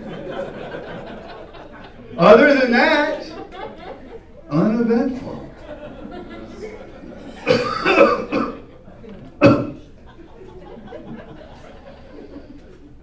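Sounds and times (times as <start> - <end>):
man coughing hard: 7.3 - 8.7, 9.4 - 9.8.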